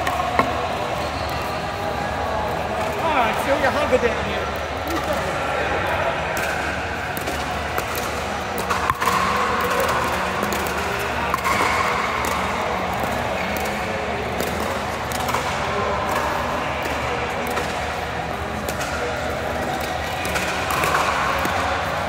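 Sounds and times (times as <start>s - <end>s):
ball bouncing on court: 6.3s - 22.0s
paddles hitting plastic ball: 6.3s - 22.0s.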